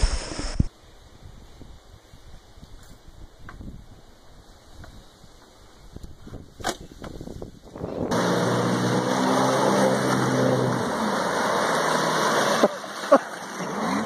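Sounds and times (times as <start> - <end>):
jet ski engine: 7.9 - 14.0
water rushing and spraying: 8.1 - 14.0.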